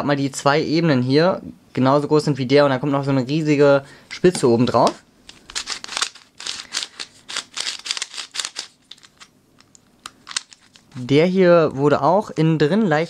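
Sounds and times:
plastic puzzle clicks and scrapes: 5.3 - 11.1.

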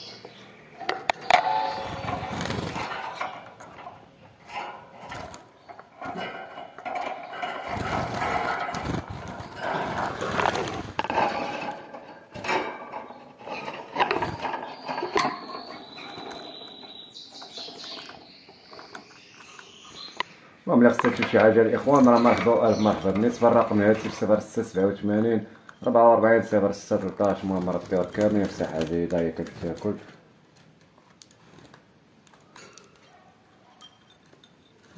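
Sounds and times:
background din: 0.7 - 28.6
clicks and knocks on wire cage: 0.8 - 15.6
birds fluttering in a cage: 1.0 - 31.8
thin high tone: 1.1 - 3.3.

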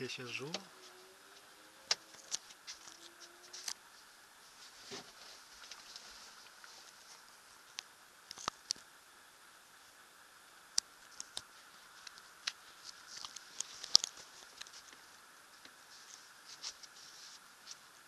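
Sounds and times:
faint steady hiss: 0.0 - 18.0.

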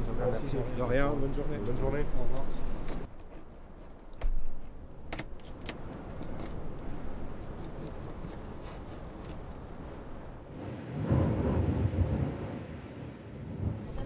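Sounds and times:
steady low rumble: 9.2 - 14.0.

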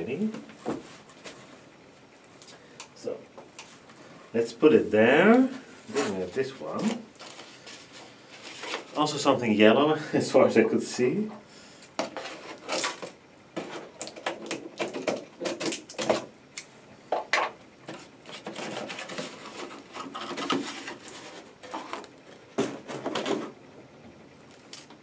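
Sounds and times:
cardboard rustling and scraping: 0.3 - 1.7, 5.4 - 9.2, 12.0 - 14.0, 17.9 - 23.6
scissors slitting packing tape: 12.5 - 13.1.

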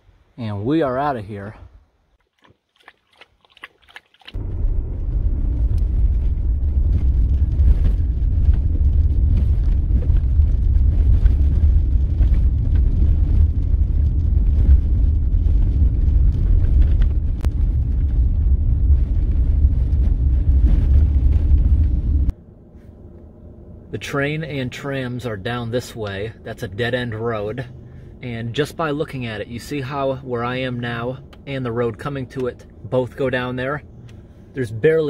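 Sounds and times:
low road rumble: 0.0 - 35.0
gravel ticks: 2.2 - 22.3.

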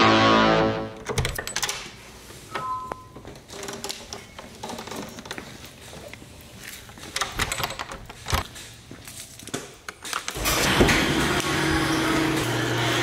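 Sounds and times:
footsteps on concrete: 8.4 - 9.4.

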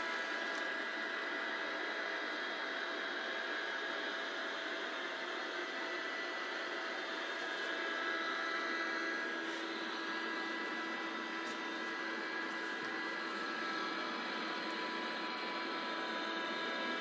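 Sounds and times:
faint steady tones: 9.1 - 17.0.

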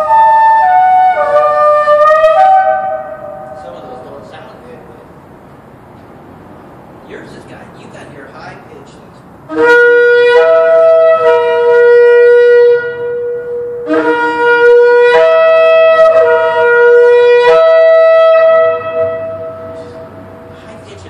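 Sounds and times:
shofar blasts: 0.0 - 4.7, 9.5 - 20.9
echo of horn blasts: 0.0 - 5.1, 9.4 - 21.0.

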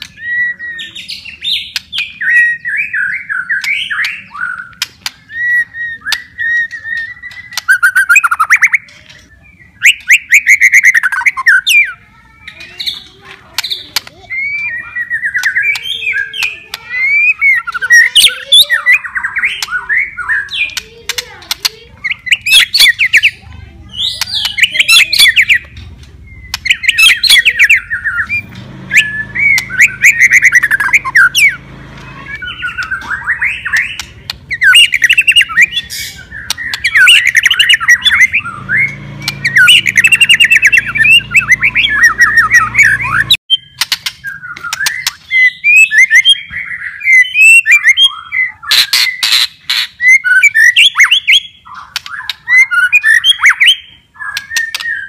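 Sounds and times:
bird singing whistled phrases: 0.0 - 20.8, 22.0 - 55.0
bird crackling clicks: 3.6 - 5.3, 6.0 - 7.8, 12.6 - 14.2, 20.5 - 21.8, 24.1 - 26.8, 32.7 - 35.4, 43.8 - 45.3, 51.9 - 52.4, 54.3 - 54.9.

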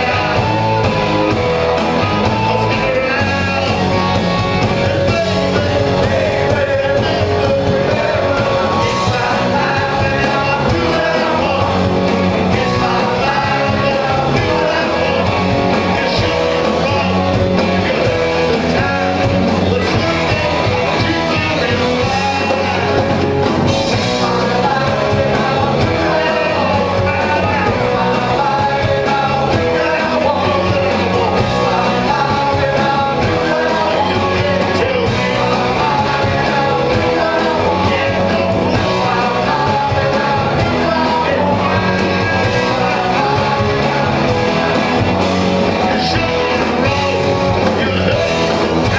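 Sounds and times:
man singing into a microphone: 0.0 - 1.0, 2.0 - 45.1, 45.7 - 48.9
live rock band playing: 0.0 - 48.9.

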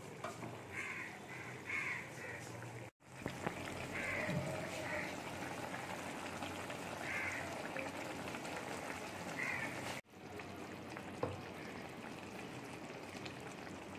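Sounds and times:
curry bubbling in a pan: 0.6 - 13.9
crows cawing: 0.7 - 2.5, 3.9 - 5.2, 7.0 - 7.7, 9.4 - 9.9.

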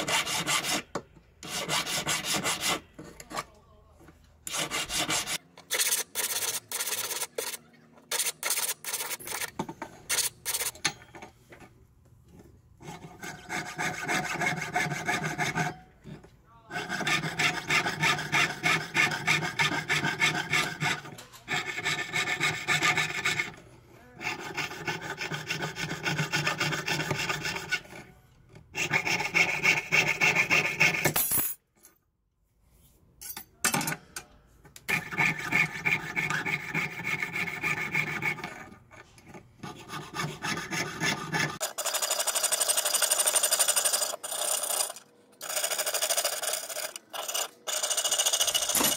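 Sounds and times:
saw cutting metal sheet: 4.5 - 9.5, 16.7 - 28.0, 34.9 - 38.7, 39.6 - 41.8.

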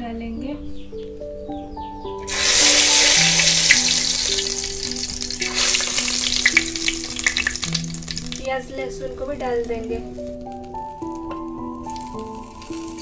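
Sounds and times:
spices sizzling in hot oil: 2.2 - 9.0, 10.2 - 13.0
crackling pops: 2.3 - 8.7, 9.9 - 13.0.

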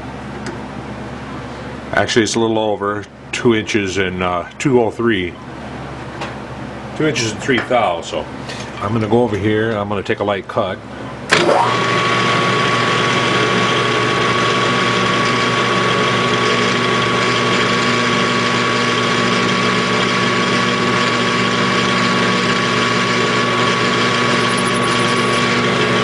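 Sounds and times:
metal lathe drone: 11.6 - 26.0
high whine: 24.2 - 26.0.

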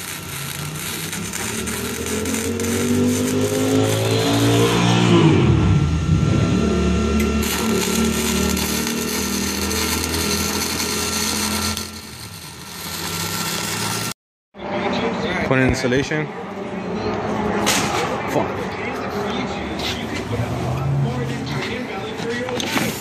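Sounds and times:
welding arc crackling: 0.0 - 5.3, 6.7 - 14.2
engine running: 0.0 - 15.4.

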